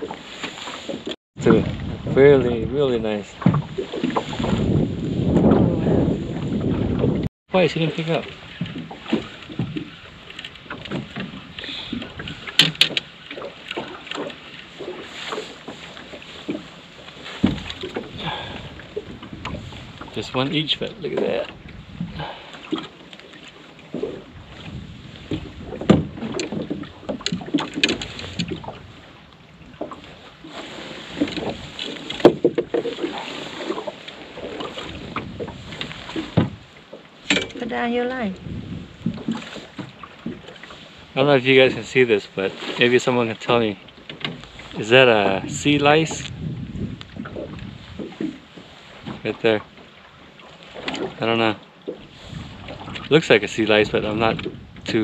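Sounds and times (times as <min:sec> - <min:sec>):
wind on microphone: 0:00.0 - 0:07.3, 0:14.8 - 0:22.8, 0:23.9 - 0:41.9, 0:44.4 - 0:49.6, 0:52.0 - 0:55.0
water slapping against boat hull: 0:00.0 - 0:55.0
low thump: 0:17.4 - 0:18.1.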